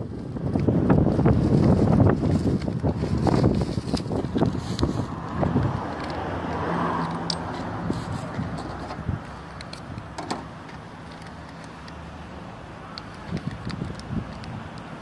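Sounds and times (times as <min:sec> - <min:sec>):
car park noise: 0:00.0 - 0:15.0
keys clicking: 0:08.7 - 0:12.0.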